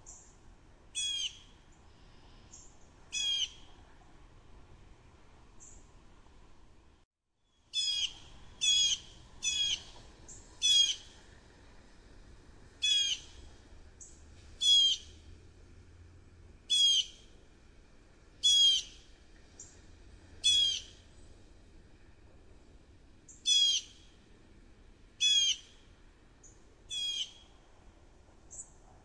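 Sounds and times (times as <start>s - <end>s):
robin chattering calls: 3.1s - 3.6s, 7.8s - 9.9s, 10.6s - 11.1s, 12.8s - 13.4s, 14.6s - 15.1s, 16.7s - 17.2s, 18.4s - 19.0s, 20.4s - 21.0s, 23.3s - 24.0s, 25.2s - 25.8s, 26.9s - 27.4s.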